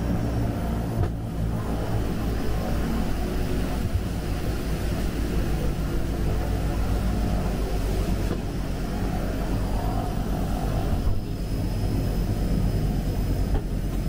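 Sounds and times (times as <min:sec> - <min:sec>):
propeller engine droning: 0:00.0 - 0:14.0.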